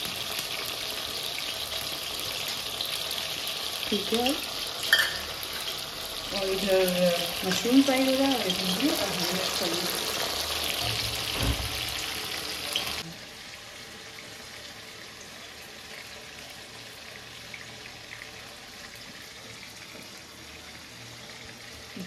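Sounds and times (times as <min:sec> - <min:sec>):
food deep-frying in oil: 0:00.0 - 0:22.0.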